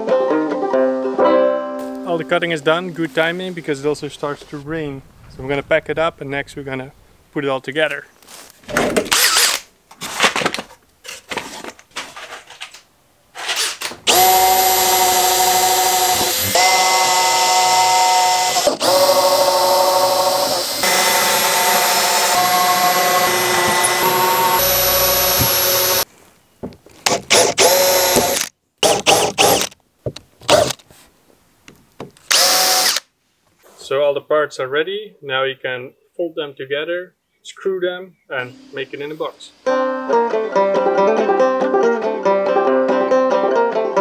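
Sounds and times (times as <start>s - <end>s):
cordless drill boring into wood: 9.1s - 9.6s, 13.5s - 26.0s, 27.1s - 29.8s, 32.3s - 33.1s.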